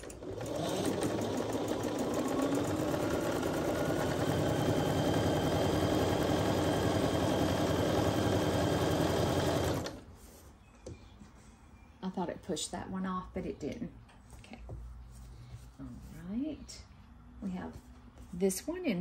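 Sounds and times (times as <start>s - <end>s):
sewing machine stitching: 0.0s - 10.1s.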